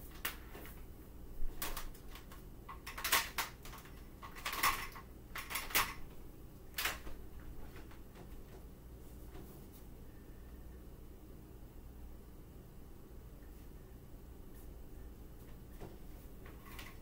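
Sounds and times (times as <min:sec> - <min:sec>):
power cord clicking and clattering on tile: 0:01.5 - 0:08.6, 0:15.8 - 0:17.0.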